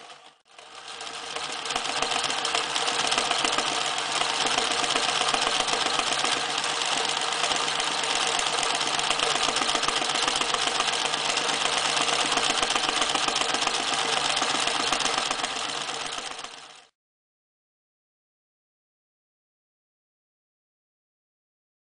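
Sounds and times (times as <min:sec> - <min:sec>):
sewing machine stitching leather: 0:00.0 - 0:16.9.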